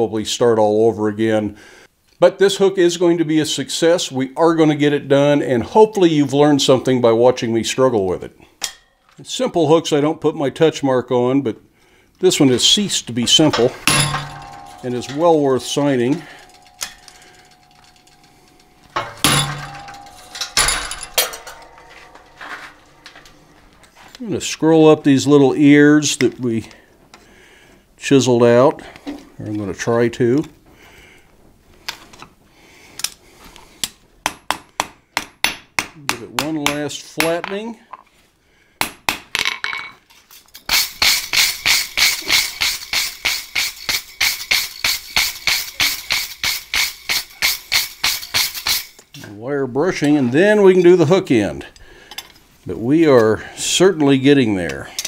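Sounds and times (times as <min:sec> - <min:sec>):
wire brush scrubbing steel: 0:13.3 - 0:23.0, 0:40.7 - 0:49.0
hammer striking metal: 0:13.3 - 0:23.8, 0:40.7 - 0:49.0.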